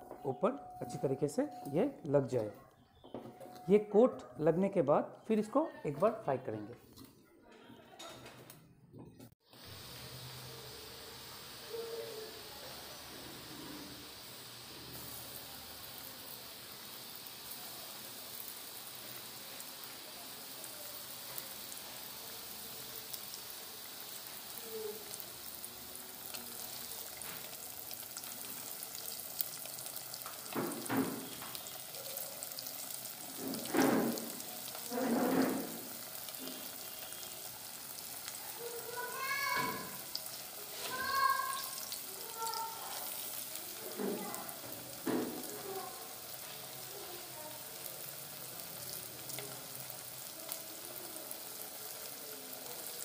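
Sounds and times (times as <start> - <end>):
chicken frying in hot oil: 9.4 - 53.0.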